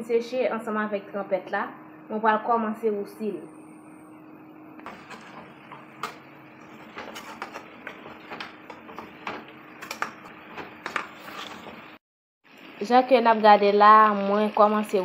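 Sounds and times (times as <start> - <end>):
faint steady hum: 0.0 - 7.6.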